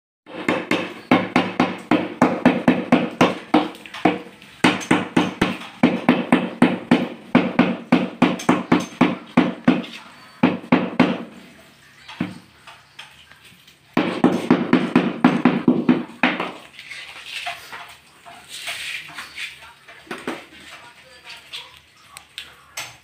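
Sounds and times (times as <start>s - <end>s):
rubber mallet knocking on tile: 0.3s - 11.3s, 14.0s - 16.6s.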